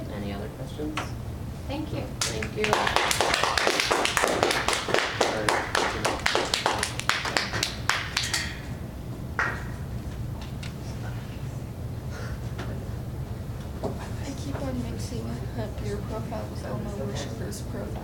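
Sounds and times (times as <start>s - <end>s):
steady low hum: 0.0s - 18.0s
audience applause: 2.2s - 8.4s.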